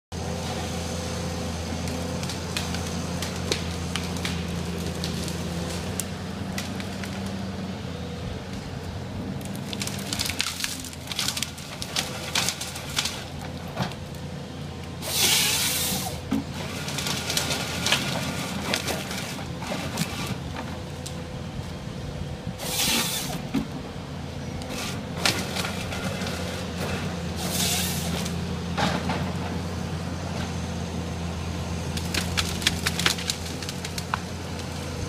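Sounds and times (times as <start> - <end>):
diesel engine running: 0.1 - 35.0
branches cracking and snapping: 1.8 - 7.4, 9.4 - 14.2, 16.4 - 21.2, 24.6 - 27.0, 31.8 - 35.0
saw hissing through a tree stem: 15.0 - 16.2, 22.6 - 23.4, 27.4 - 28.2.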